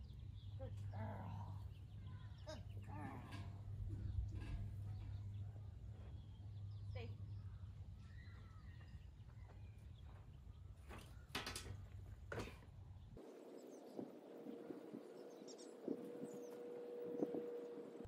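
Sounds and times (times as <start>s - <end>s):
faint bird chirps: 0.0s - 11.3s
steady low hum: 11.8s - 18.0s.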